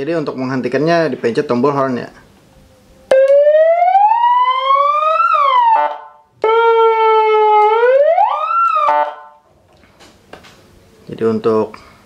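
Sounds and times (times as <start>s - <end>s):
electronic siren tones: 3.1s - 9.4s.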